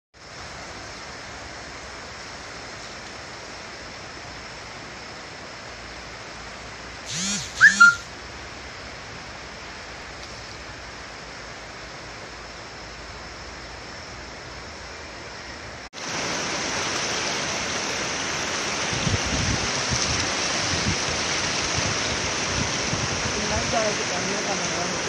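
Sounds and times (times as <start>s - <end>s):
river rushing: 0.2s - 25.0s
loud rising and falling calls: 7.1s - 8.1s.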